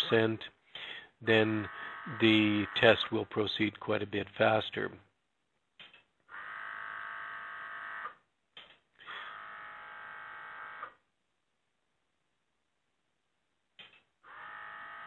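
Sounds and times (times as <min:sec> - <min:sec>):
small electric water pump buzzing: 0:06.3 - 0:08.2, 0:09.1 - 0:11.0, 0:14.2 - 0:15.0.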